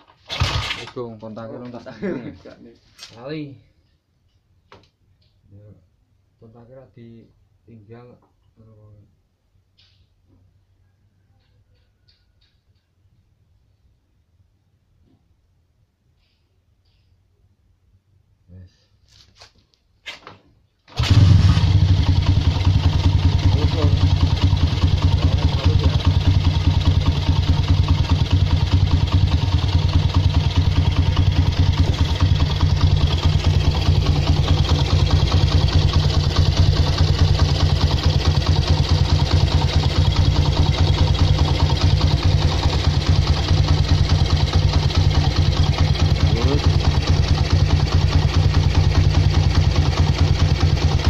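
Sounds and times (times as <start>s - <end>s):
motorcycle engine idling: 21.0s - 51.0s.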